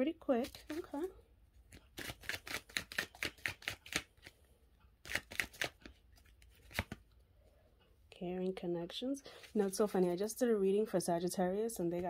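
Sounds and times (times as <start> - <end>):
cards being shuffled: 0.4 - 1.1, 1.7 - 4.4, 5.0 - 7.0.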